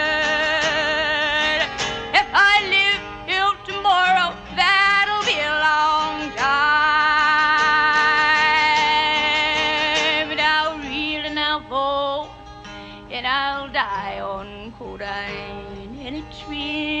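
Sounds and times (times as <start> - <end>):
woman singing wordless vibrato: 0.0 - 17.0.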